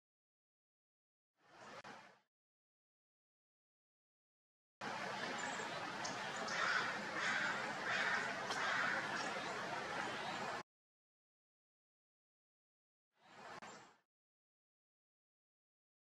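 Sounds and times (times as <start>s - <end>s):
outdoor background hiss: 4.8s - 10.6s
bird calling: 5.2s - 10.6s.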